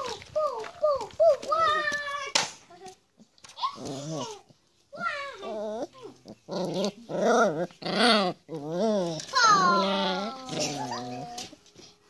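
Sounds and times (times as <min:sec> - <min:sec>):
puppy growling and whining: 0:03.7 - 0:04.4, 0:05.4 - 0:11.6.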